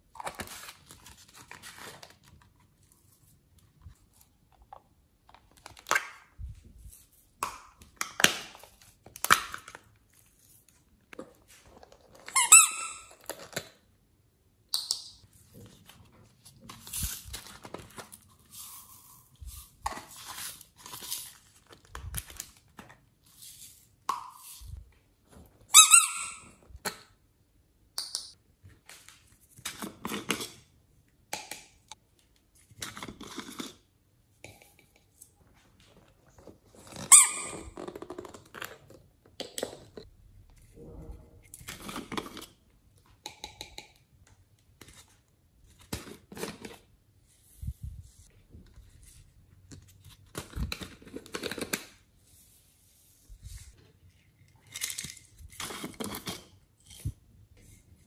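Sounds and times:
sharp plastic squeaks: 12.2 - 13.4, 36.9 - 38.3.

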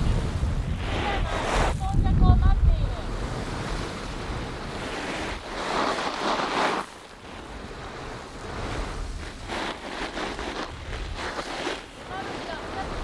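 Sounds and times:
wind buffeting microphone: 0.0 - 13.0
crackly rustles: 4.8 - 13.0
rustling: 4.8 - 13.0.

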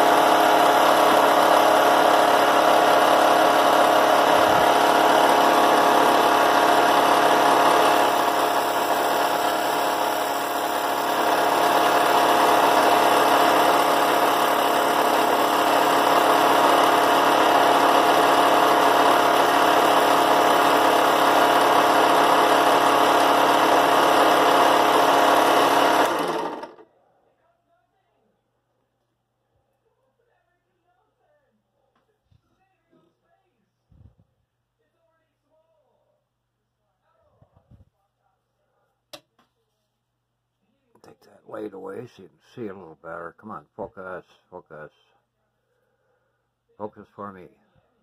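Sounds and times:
drill press running: 0.0 - 26.8
grinding wheel against metal: 0.0 - 26.8.

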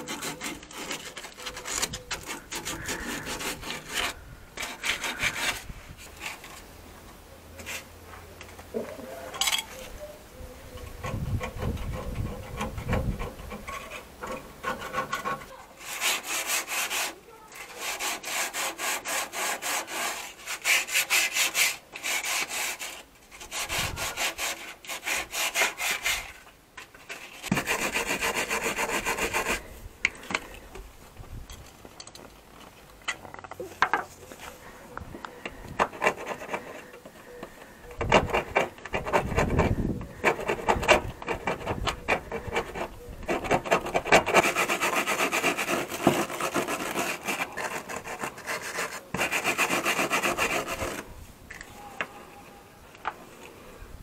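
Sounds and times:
scrubbing rusty metal: 0.0 - 6.7, 10.8 - 30.4, 35.4 - 51.1.

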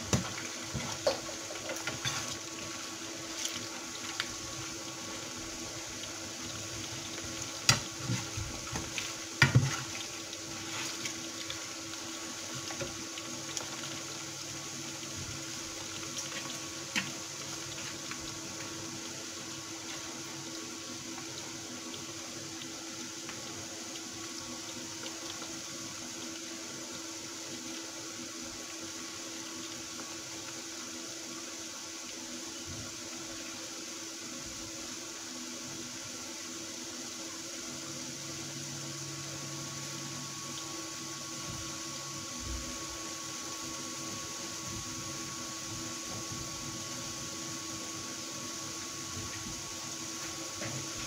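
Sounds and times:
faint steady hum: 0.0 - 51.0
fries sizzling in hot oil: 0.0 - 51.0.

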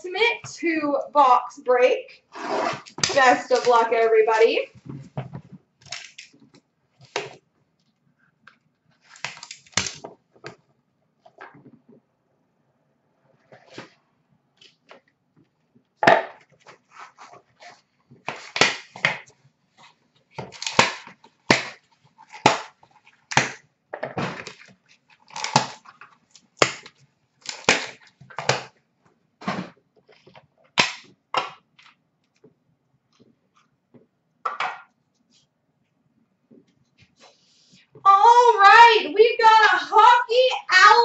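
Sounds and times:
plastic and cardboard packaging ripping: 9.0 - 10.0, 24.3 - 28.7.

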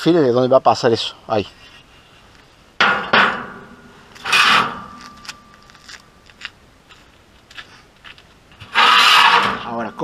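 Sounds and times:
metal scraping clank with ring: 2.8 - 5.6, 8.7 - 10.0.

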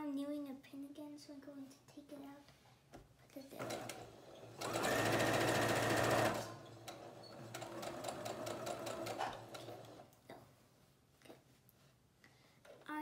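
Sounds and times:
electric sewing machine stitching: 3.6 - 10.1.

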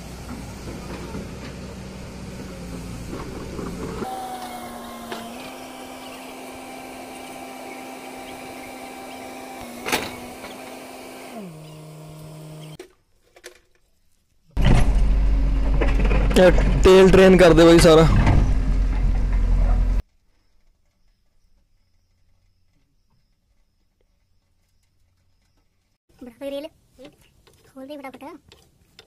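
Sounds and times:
excavator engine with hydraulic whine: 0.0 - 12.8, 14.6 - 16.9
loud low engine rumble: 0.0 - 12.8, 14.6 - 20.0.

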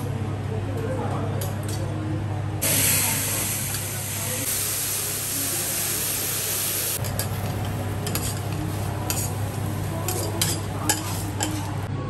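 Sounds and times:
flame flare-up hissing: 2.6 - 9.9
food sizzling on griddle: 2.6 - 11.8
metal spatulas scraping steel: 8.0 - 9.4, 10.0 - 11.9.

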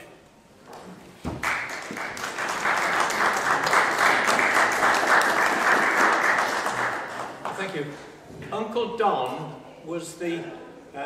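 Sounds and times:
audience applauding: 1.3 - 7.8.

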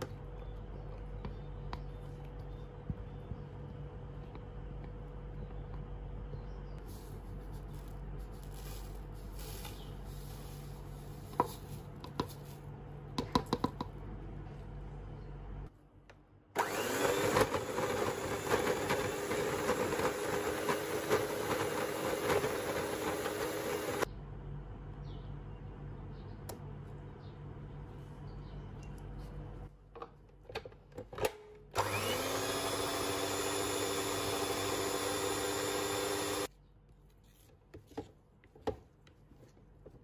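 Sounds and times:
electric hand mixer beating: 16.6 - 24.1, 31.8 - 36.5.

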